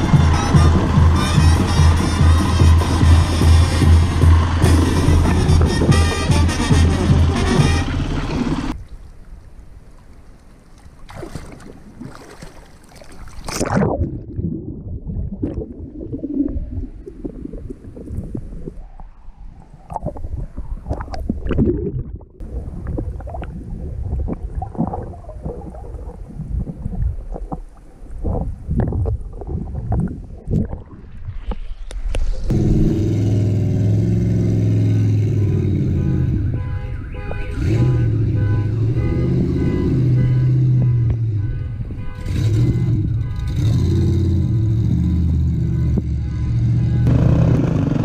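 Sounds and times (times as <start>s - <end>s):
vehicle engine running: 0.0s - 8.8s, 42.3s - 48.0s
water sloshing and gurgling: 7.8s - 32.8s.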